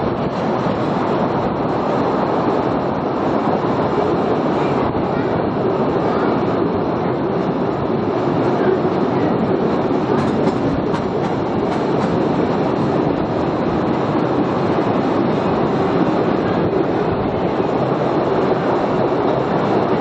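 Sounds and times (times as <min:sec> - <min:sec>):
wheels on rails: 0:07.4 - 0:20.0
rattling carriages: 0:09.3 - 0:13.4.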